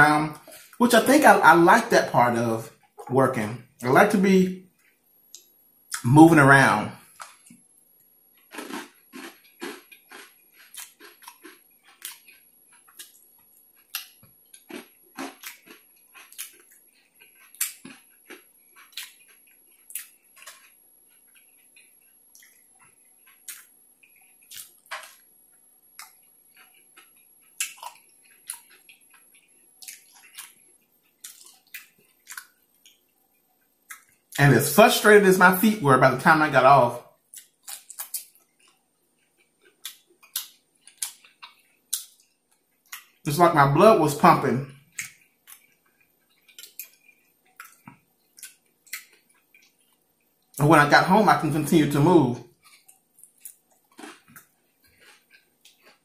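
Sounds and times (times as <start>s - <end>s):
close-miked wet chewing: 8.4s - 25.3s, 26.0s - 33.1s, 37.2s - 43.2s, 44.8s - 50.6s, 52.5s - 56.0s.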